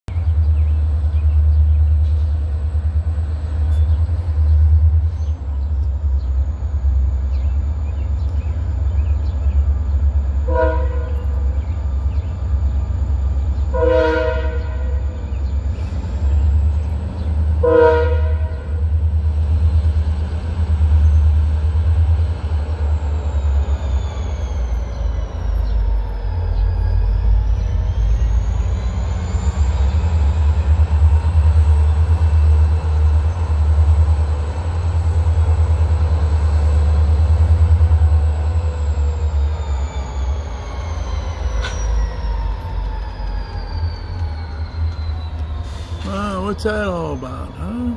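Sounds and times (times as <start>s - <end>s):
locomotive engine rumbling: 0.1s - 47.9s
train air horn blasts: 10.4s - 11.3s, 13.7s - 15.1s, 17.6s - 18.8s.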